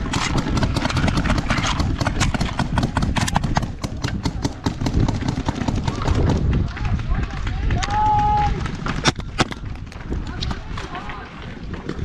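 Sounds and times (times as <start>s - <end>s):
paintball markers firing: 0.0s - 6.7s.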